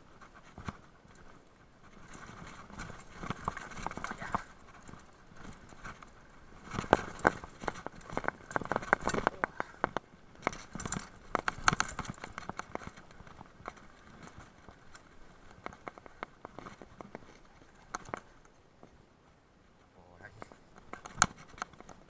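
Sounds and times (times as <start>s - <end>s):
bike tyres clattering on stones: 2.0s - 18.4s.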